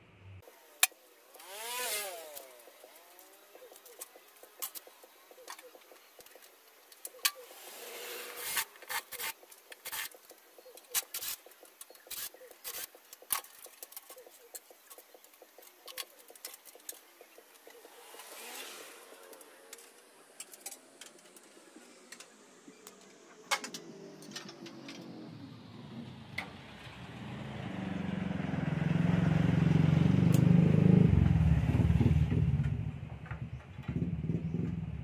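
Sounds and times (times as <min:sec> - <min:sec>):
vehicle passing: 0:01.4 - 0:09.3, 0:15.9 - 0:35.0
plastic clicks and rattles: 0:08.7 - 0:17.8.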